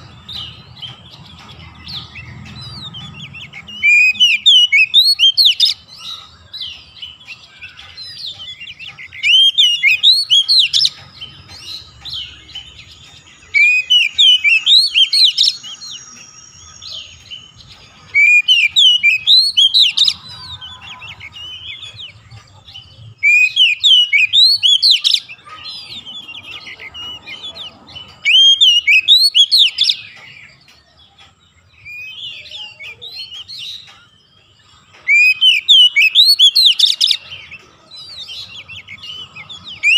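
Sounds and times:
bird singing whistled phrases: 3.7 - 6.2, 7.6 - 11.0, 13.5 - 22.2, 23.2 - 25.9, 26.6 - 30.2, 35.0 - 39.9.

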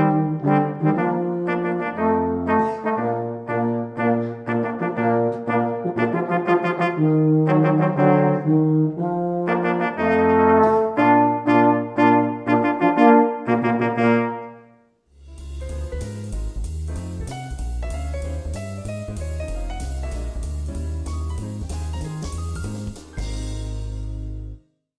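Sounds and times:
brass ensemble playing march: 0.0 - 14.6
music with drums: 15.1 - 24.4.

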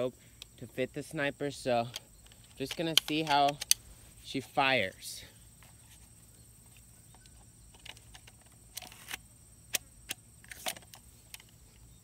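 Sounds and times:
rifle handling clicks and knocks: 1.5 - 3.9, 6.6 - 11.9.

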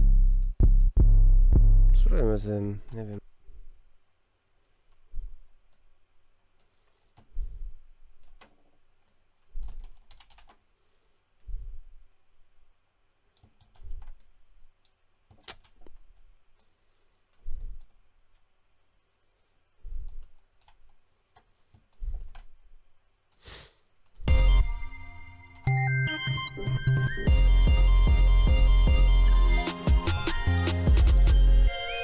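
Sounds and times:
computer mouse clicks: 8.2 - 10.6, 13.3 - 18.5, 19.9 - 22.6
keyboard keystrokes: 9.6 - 10.6.

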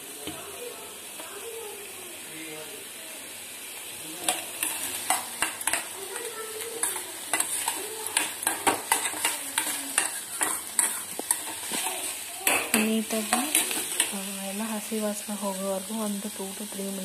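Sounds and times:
vegetables sizzling: 0.0 - 17.0
steel spoon scraping metal pan: 4.3 - 14.2.

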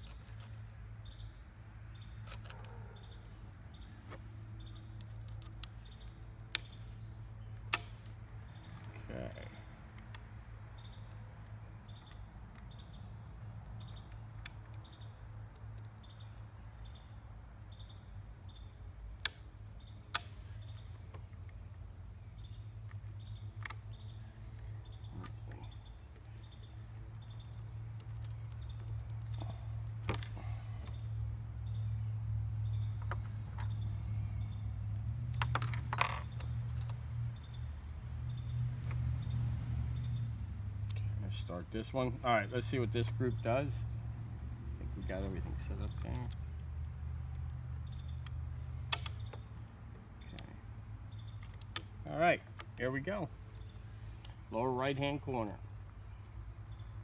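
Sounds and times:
insects chirping: 0.0 - 57.0
sharp clicks: 48.2 - 49.4.

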